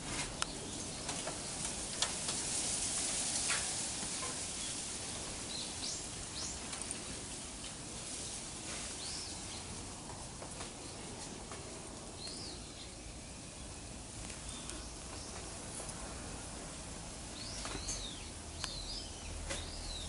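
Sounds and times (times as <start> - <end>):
soft clicks and rustles: 0.0 - 12.5
outdoor background hiss: 0.0 - 20.0.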